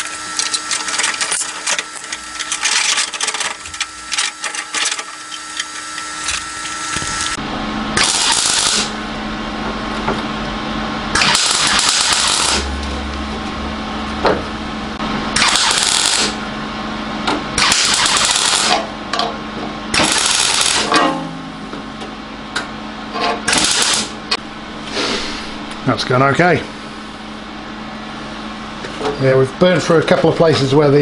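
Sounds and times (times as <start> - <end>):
welder arc crackling: 0.0 - 7.4, 8.0 - 9.0, 11.2 - 13.4, 15.4 - 16.4, 17.6 - 18.9, 20.0 - 20.9, 23.5 - 24.2
steady low hum: 0.0 - 31.0.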